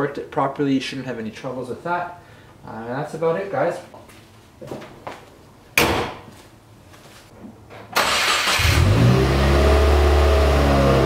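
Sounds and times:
car engine starting and idling: 8.0 - 11.0.

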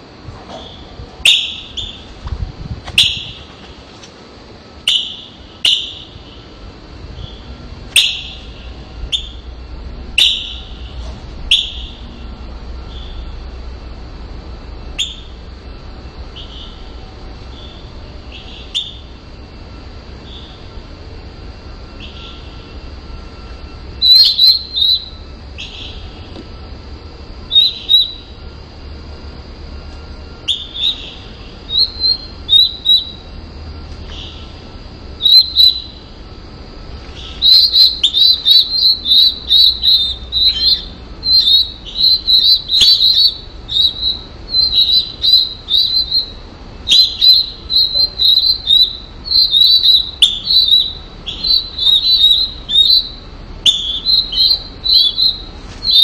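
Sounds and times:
nestlings chirping: 0.6 - 2.2, 2.9 - 4.1, 4.8 - 6.5, 7.2 - 9.5, 10.2 - 12.2, 15.0 - 15.4, 17.5 - 19.1, 24.0 - 26.1, 27.5 - 28.4, 30.4 - 33.3, 35.2 - 36.1, 37.0 - 56.0.

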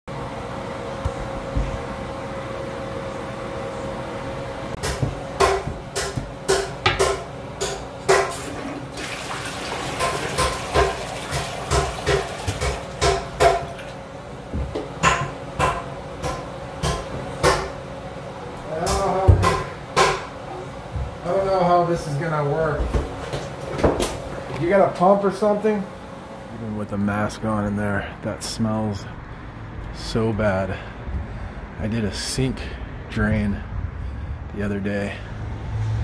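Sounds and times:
steady low hum: 0.1 - 8.4, 12.9 - 36.0
sharp ringing knocks: 4.8 - 8.4.

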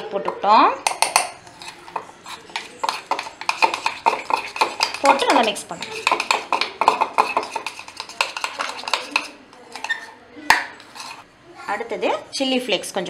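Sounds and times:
metal spoon scraping bowl: 0.2 - 11.9.

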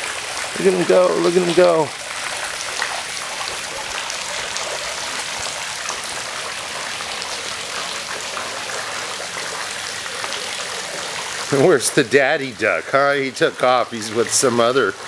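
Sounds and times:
water splashing into a pool: 0.0 - 15.0.

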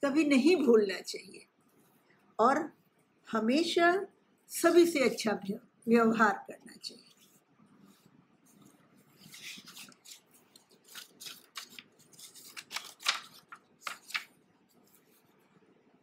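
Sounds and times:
paper rustling: 7.1 - 15.3.

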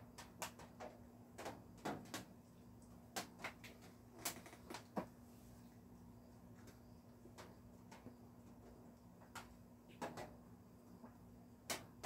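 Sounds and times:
raindrops ticking on roof: 0.0 - 5.1, 6.6 - 10.4.

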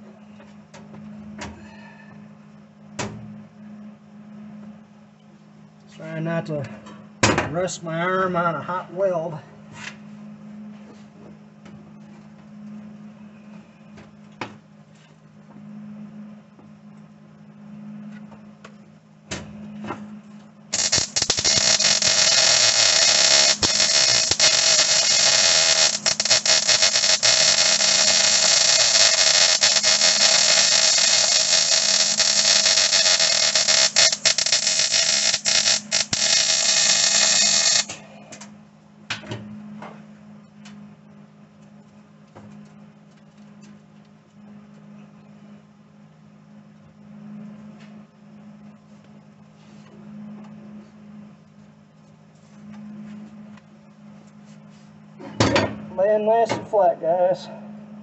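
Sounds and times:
arc welding crackling hiss: 20.7 - 38.5.

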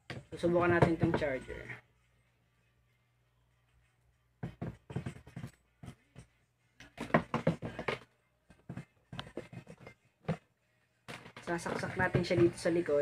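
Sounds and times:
cable handling knocks and clicks: 6.8 - 10.4, 11.1 - 12.6.

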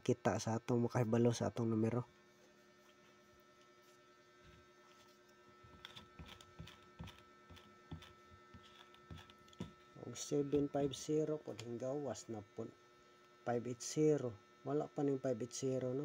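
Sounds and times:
faint steady hum: 0.0 - 16.0
eraser rubbing whiteboard: 4.9 - 9.4.

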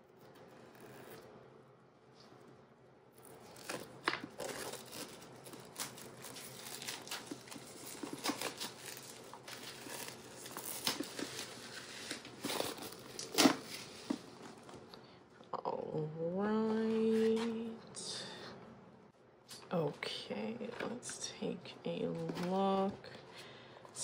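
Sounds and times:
packaging crinkling and tearing: 3.2 - 14.8.

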